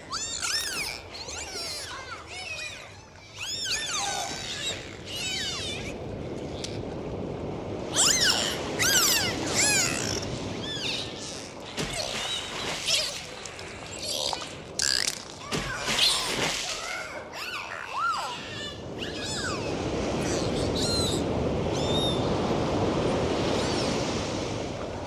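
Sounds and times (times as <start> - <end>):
dolphins whistling underwater: 0.0 - 2.0, 3.4 - 5.9, 7.9 - 13.2, 16.0 - 22.2.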